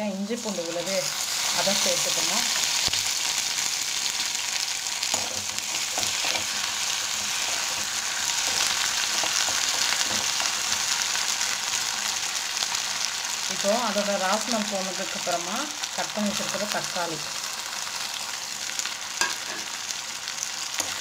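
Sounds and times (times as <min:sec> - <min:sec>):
onions sizzling in hot oil: 0:00.0 - 0:21.0
spatula stirring and scraping: 0:05.0 - 0:10.7.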